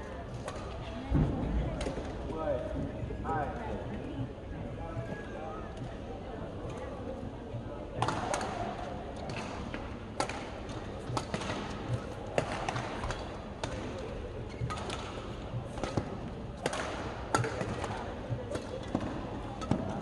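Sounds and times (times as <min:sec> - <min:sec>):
shuttlecock hit with rackets: 0:09.3 - 0:14.0, 0:15.8 - 0:20.0.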